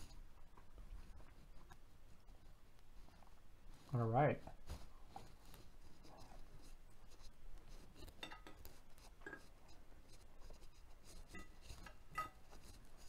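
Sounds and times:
cutlery scraping a ceramic plate: 0:08.0 - 0:09.6, 0:11.1 - 0:12.8.

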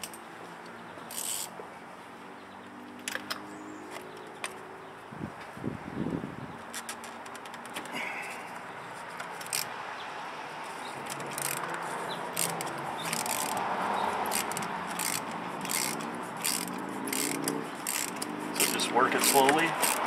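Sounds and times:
ratchet clicking: 0:01.1 - 0:01.5, 0:09.3 - 0:09.7, 0:11.0 - 0:13.6, 0:14.2 - 0:20.0.

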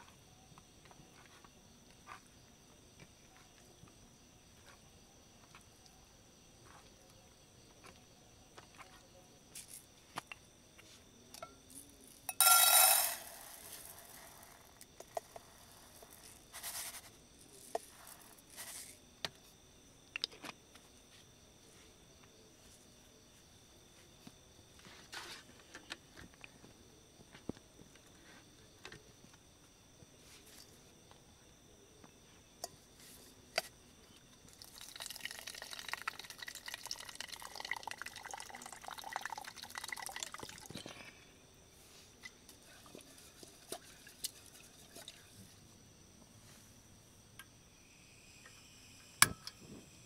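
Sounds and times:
insects chirring: 0:00.0 - 0:50.0
rice pouring into metal pot: 0:11.7 - 0:19.0, 0:34.5 - 0:40.8.

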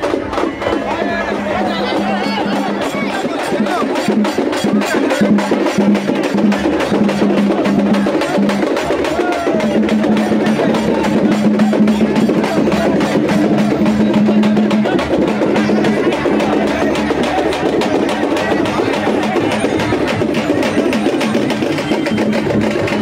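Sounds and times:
rapid drumming: 0:00.0 - 0:23.0.

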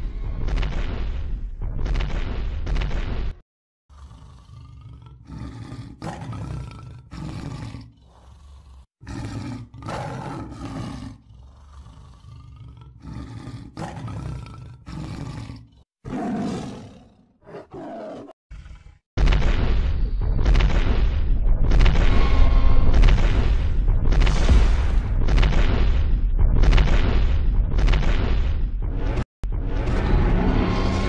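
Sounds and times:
deep growling roars: 0:03.9 - 0:19.0.

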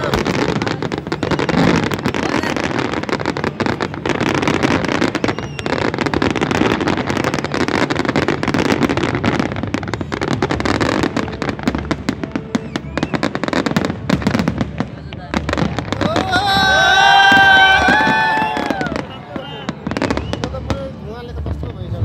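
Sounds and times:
fireworks banging and crackling: 0:00.0 - 0:22.0.

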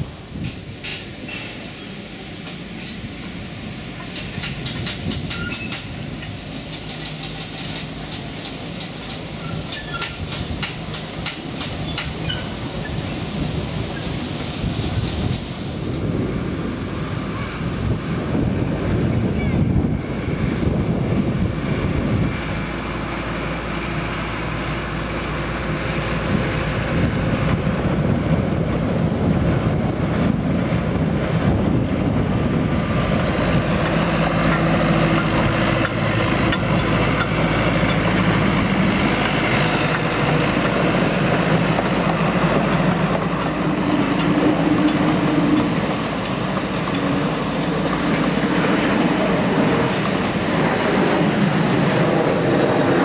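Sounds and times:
diesel train running on track: 0:00.0 - 0:53.0.

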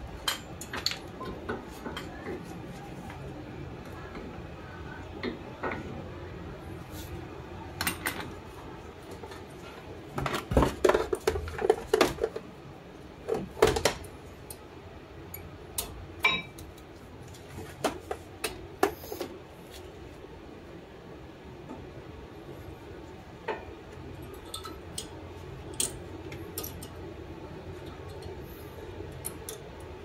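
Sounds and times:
metal tools clicking and clanking: 0:24.2 - 0:27.0.

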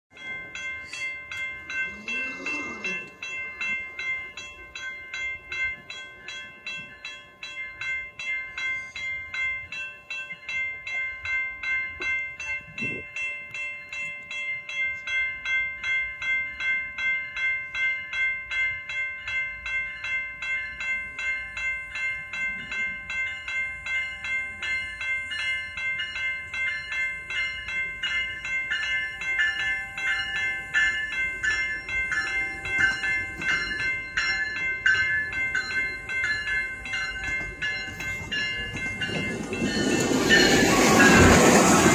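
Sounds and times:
level crossing warning bell: 0:00.1 - 0:41.9
train rumble: 0:00.1 - 0:41.9.

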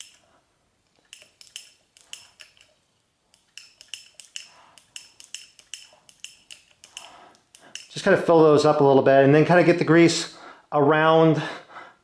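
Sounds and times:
plastic parts tapping on steel: 0:03.4 - 0:08.0.

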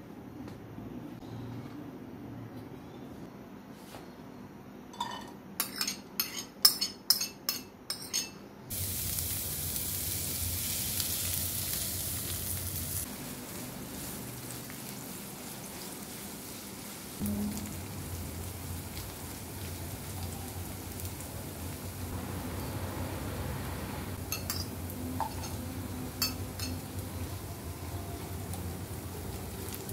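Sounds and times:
oil sizzling in hot pan: 0:08.7 - 0:29.9
onions frying: 0:08.7 - 0:29.9
onions clinking into a pan: 0:24.2 - 0:27.1.

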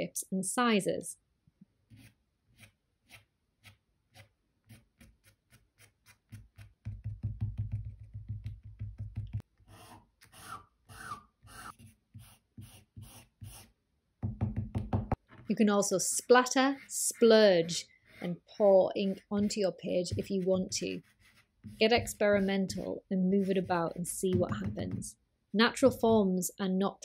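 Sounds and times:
twig scratching on paper: 0:01.9 - 0:06.8, 0:16.1 - 0:24.2.

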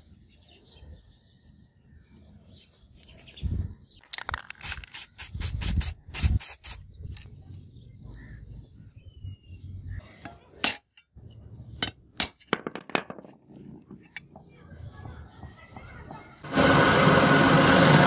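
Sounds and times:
spray can rattling: 0:04.0 - 0:06.8.

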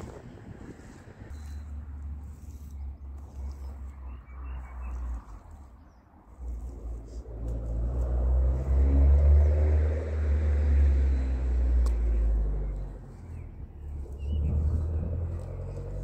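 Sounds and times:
passing vehicle engine rumble: 0:00.0 - 0:16.0.

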